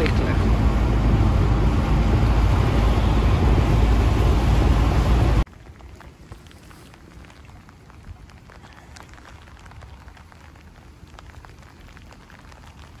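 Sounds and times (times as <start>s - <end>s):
rain drops ticking: 5.4s - 13.0s.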